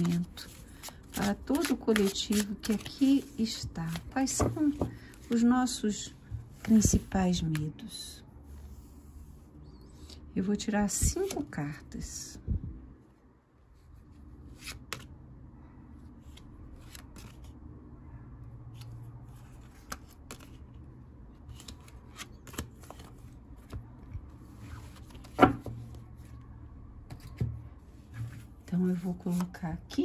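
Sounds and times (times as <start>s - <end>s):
cards being shuffled: 0.0s - 5.4s, 16.2s - 17.5s, 19.3s - 20.8s, 21.4s - 24.0s, 24.6s - 26.0s, 28.2s - 29.6s.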